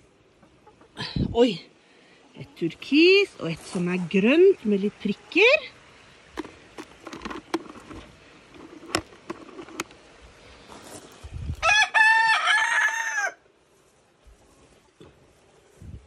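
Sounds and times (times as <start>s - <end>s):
rustling: 6.3s - 10.0s
rooster crowing: 11.6s - 13.4s.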